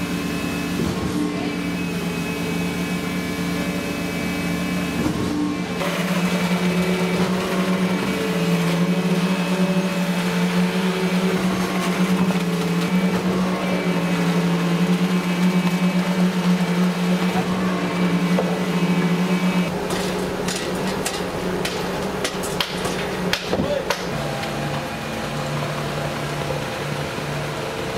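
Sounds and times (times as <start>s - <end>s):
concrete machinery humming: 0.0s - 27.9s
knocks and clatter: 19.8s - 24.1s.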